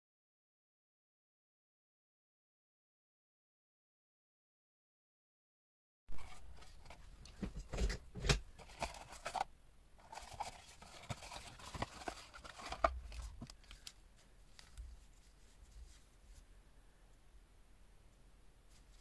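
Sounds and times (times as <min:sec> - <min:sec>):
cardboard rustling: 0:06.2 - 0:16.4.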